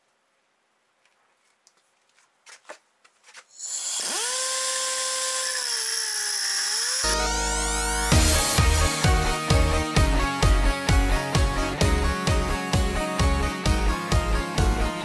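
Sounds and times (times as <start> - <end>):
pneumatic grinder whine: 3.6 - 8.6.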